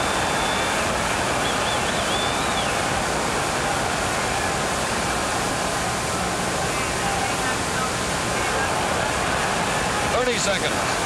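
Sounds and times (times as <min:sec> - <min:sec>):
high wavering whistle: 0:00.0 - 0:00.8, 0:01.4 - 0:02.8
loud arena crowd noise: 0:00.0 - 0:11.0.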